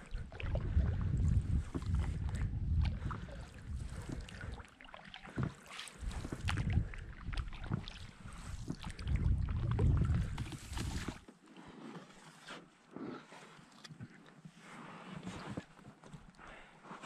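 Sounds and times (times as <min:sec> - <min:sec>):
wind on microphone: 0:00.0 - 0:04.6, 0:05.3 - 0:11.2
oars splashing: 0:00.0 - 0:16.0.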